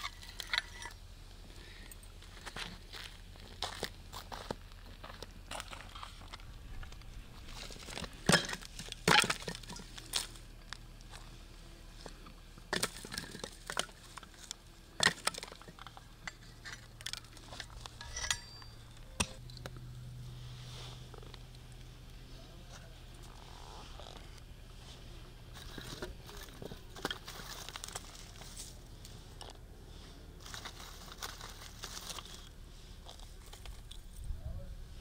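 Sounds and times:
faint low hum: 0.0 - 35.0
utensils and dishes clinking: 16.3 - 19.4.

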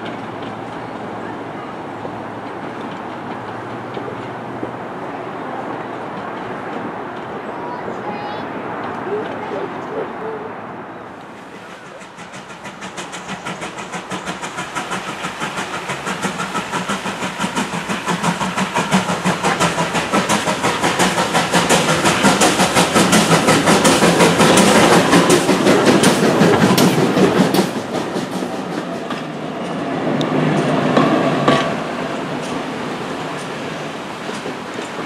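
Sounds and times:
steam locomotive chuffing: 11.2 - 35.0.

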